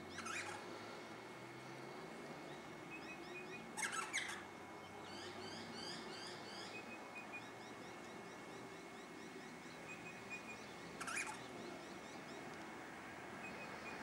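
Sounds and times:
faint bird calls: 0.0 - 12.5
short rising bird chirps: 0.1 - 1.0, 3.0 - 4.5
loud bird call: 11.0 - 11.8.

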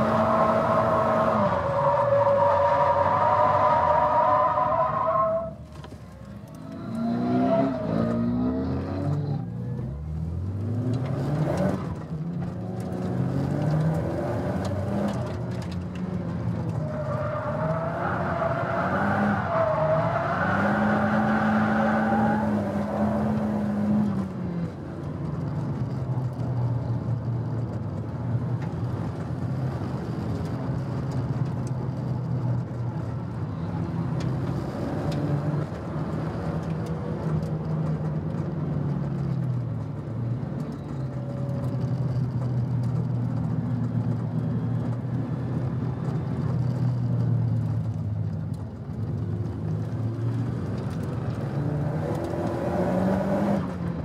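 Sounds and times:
car engine revving in cabin: 49.8 - 53.8.

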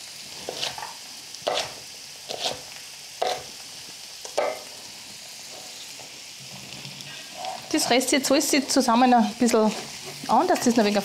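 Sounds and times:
vegetables sizzling in oil: 0.0 - 11.0
knife chopping on wooden board: 1.5 - 1.7.

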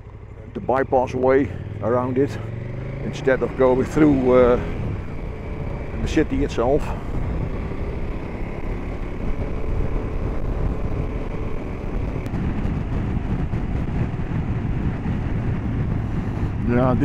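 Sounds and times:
motorcycle engine cruising: 0.0 - 17.0
road and wind noise: 0.0 - 17.0.

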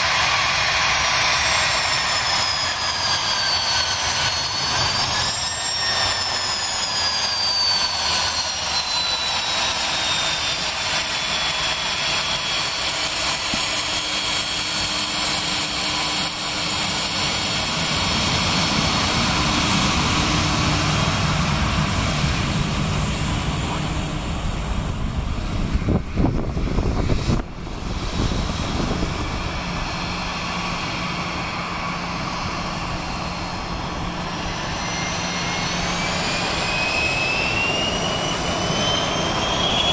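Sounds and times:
jet engines whining: 0.0 - 39.9.

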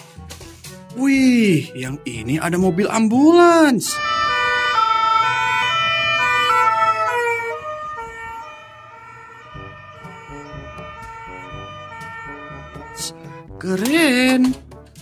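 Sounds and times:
traffic rumbling: 3.8 - 15.0
ambulance two-tone siren: 3.9 - 13.5.

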